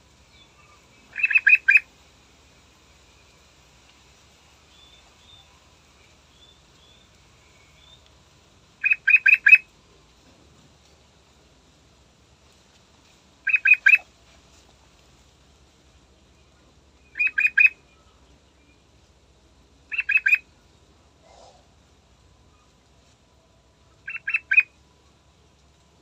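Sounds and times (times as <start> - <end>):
bulbul singing: 0.3 - 1.9, 8.8 - 9.7, 13.4 - 14.0, 17.0 - 18.0, 19.9 - 20.5, 24.1 - 24.7
faint high chirps: 0.3 - 1.9, 4.6 - 8.2.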